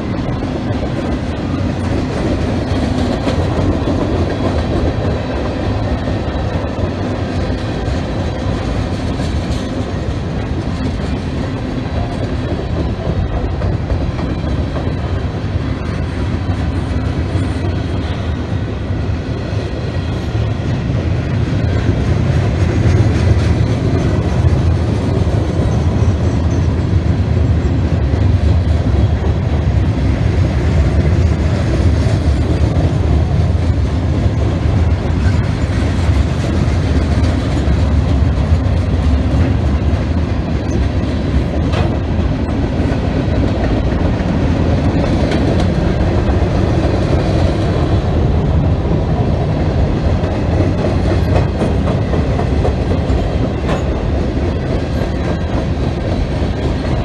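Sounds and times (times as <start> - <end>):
freight train wheels rumbling on rails: 0.0 - 57.0.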